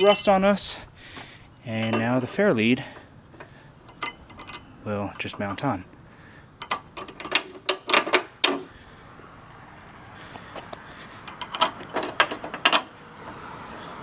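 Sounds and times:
metal bolts clicking and clinking: 0:00.0 - 0:00.4, 0:01.7 - 0:05.8, 0:06.6 - 0:08.7, 0:11.2 - 0:13.0.

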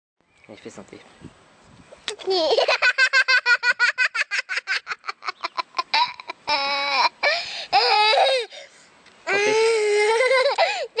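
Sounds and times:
baby giggling: 0:02.1 - 0:07.2, 0:10.0 - 0:11.0.

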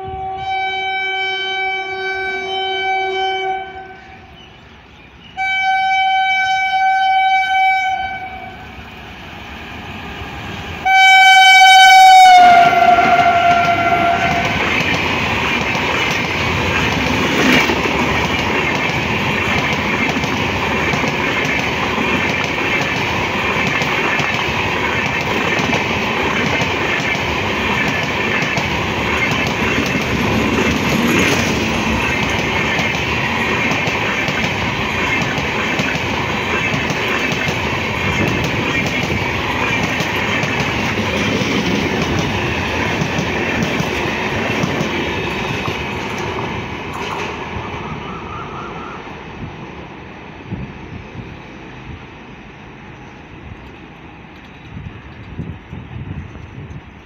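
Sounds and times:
two-tone train horn: 0:00.0 - 0:04.4, 0:05.4 - 0:08.8, 0:10.8 - 0:14.6, 0:47.8 - 0:49.3
train wheels clattering on rails: 0:12.5 - 0:48.0.

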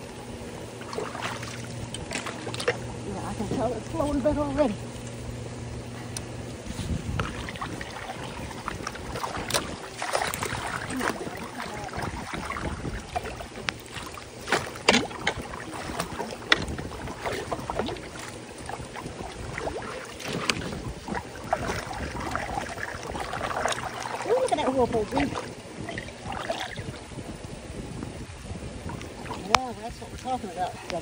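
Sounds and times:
floodwater sloshing and splashing: 0:00.0 - 0:05.4, 0:06.0 - 0:31.0
raindrops on water: 0:07.2 - 0:27.5, 0:28.3 - 0:31.0.

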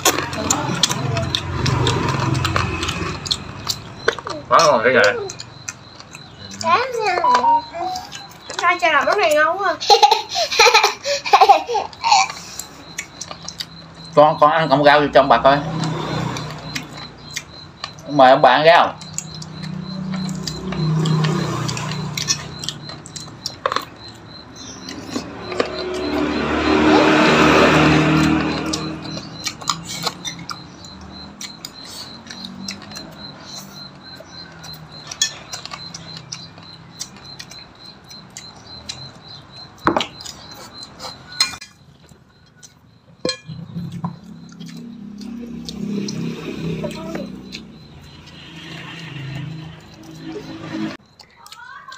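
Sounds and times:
chewing: 0:00.0 - 0:09.5, 0:12.2 - 0:15.0, 0:15.6 - 0:18.1, 0:18.9 - 0:51.9
spoons clicking on plates: 0:34.6 - 0:37.6.

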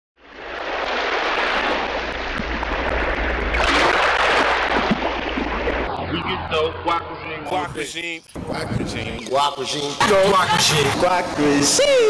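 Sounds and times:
ocean waves washing: 0:00.2 - 0:07.7.

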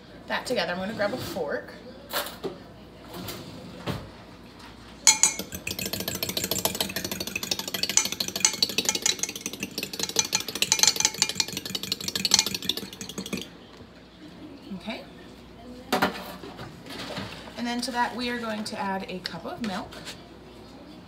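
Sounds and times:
fork whisking eggs in glass: 0:05.1 - 0:13.5.

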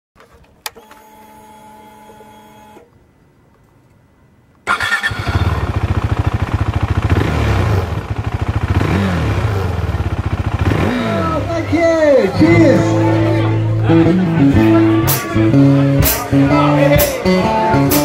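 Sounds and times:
fuel pump electric whir: 0:00.6 - 0:02.9
motorcycle engine starting: 0:04.6 - 0:16.4
motorcycle engine idling: 0:04.8 - 0:12.3.

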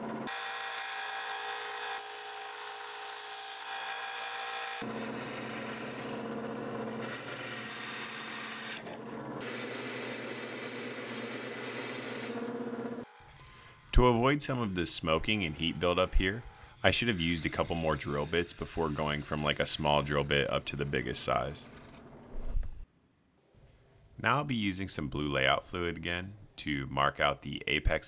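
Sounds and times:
drill press motor hum: 0:00.0 - 0:13.9
drill bit scraping steel: 0:00.3 - 0:12.5, 0:13.1 - 0:22.0.

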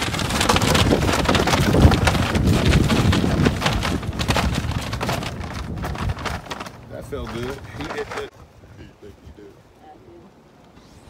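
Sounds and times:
paper bag rustling and crinkling: 0:00.0 - 0:08.3
wind buffeting microphone: 0:00.0 - 0:10.2.

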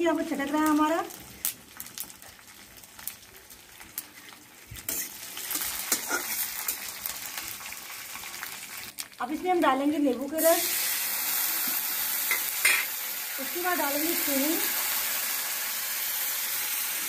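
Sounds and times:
spices sizzling in hot oil: 0:00.0 - 0:17.0.

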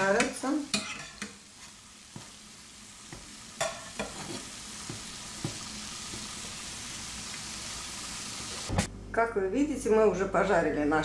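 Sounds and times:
doughnuts sizzling in oil: 0:00.0 - 0:08.8
metal tongs clinking on pan: 0:00.2 - 0:01.4, 0:03.6 - 0:04.4.

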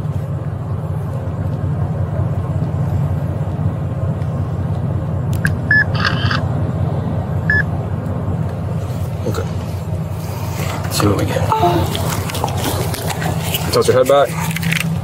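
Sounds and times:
vehicle idling rumble: 0:00.0 - 0:15.0
short electronic beeps: 0:05.7 - 0:06.4, 0:07.5 - 0:07.7.

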